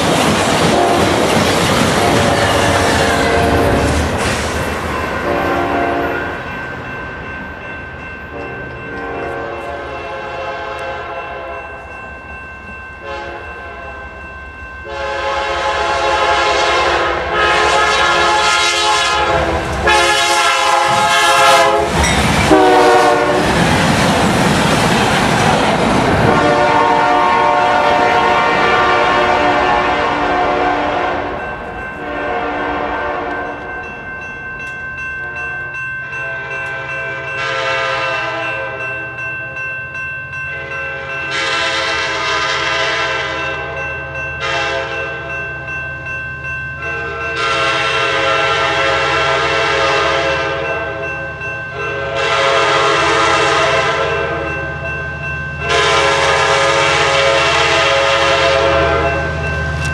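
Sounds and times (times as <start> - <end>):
crossing warning bell ringing: 0.0 - 59.9
train passing: 0.0 - 59.9
locomotive air horn blasts: 0.7 - 1.2, 2.0 - 4.0, 5.2 - 6.4, 8.3 - 11.7, 13.0 - 14.0, 14.9 - 23.6, 26.2 - 31.4, 32.0 - 33.6, 36.2 - 38.8, 40.6 - 43.8, 44.4 - 45.1, 47.0 - 51.0, 51.8 - 54.6, 55.6 - 59.3.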